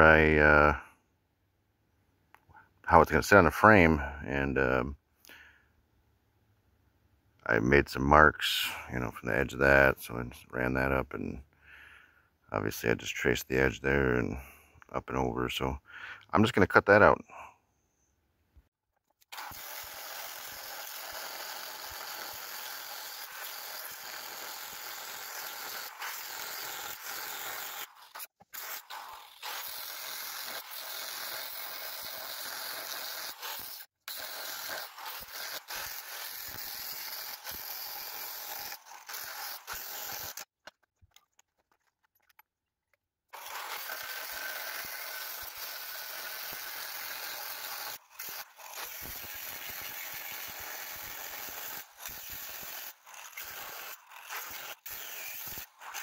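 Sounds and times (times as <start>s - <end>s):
angle grinder cutting steel: 19.3s - 40.5s, 43.4s - 56.0s.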